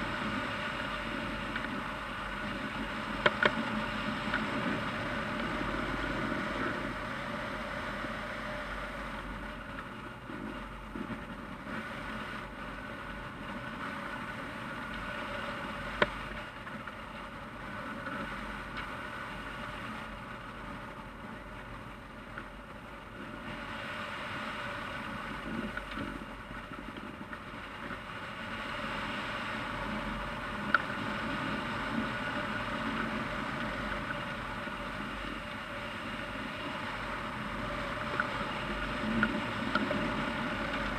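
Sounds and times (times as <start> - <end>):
wind rushing over microphone: 0.0 - 40.9.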